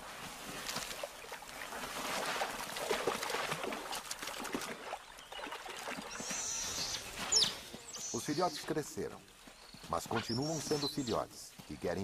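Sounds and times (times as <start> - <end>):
otters splashing in water: 0.2 - 8.9.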